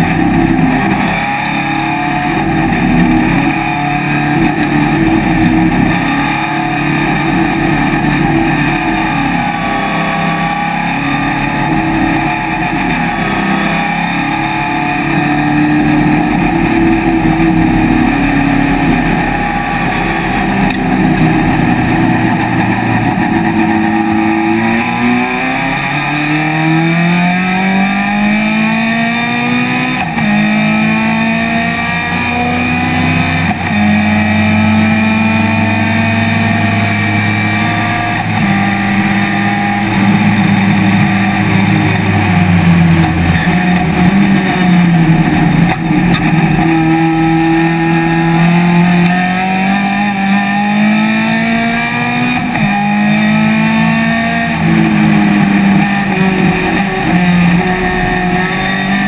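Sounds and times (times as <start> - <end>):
race car engine running hard: 0.0 - 59.0.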